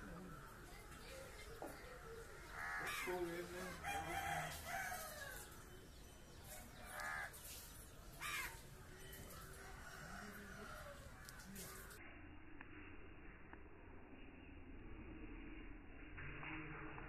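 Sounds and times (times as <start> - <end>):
crows cawing: 0.0 - 5.6, 6.5 - 12.0
faint outdoor background: 0.0 - 17.0.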